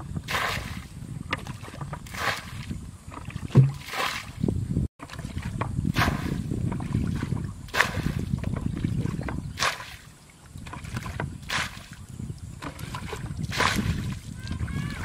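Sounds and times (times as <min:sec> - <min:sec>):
water sloshing: 0:00.2 - 0:15.0
water splashing from bucket: 0:01.4 - 0:04.4, 0:05.0 - 0:12.0, 0:12.6 - 0:14.3
dull thump: 0:03.4 - 0:04.3, 0:05.6 - 0:06.9.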